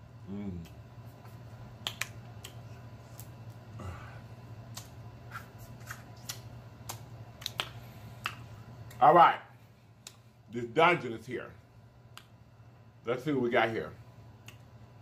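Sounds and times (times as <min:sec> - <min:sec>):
steady low hum: 0:00.0 - 0:15.0
wet lip smacks while chewing: 0:01.8 - 0:03.4, 0:05.9 - 0:09.0.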